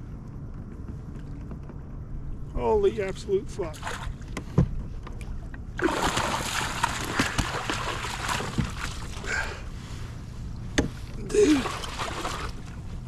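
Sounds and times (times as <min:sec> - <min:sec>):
fish thrashing in water: 0:05.8 - 0:09.5, 0:11.4 - 0:12.8.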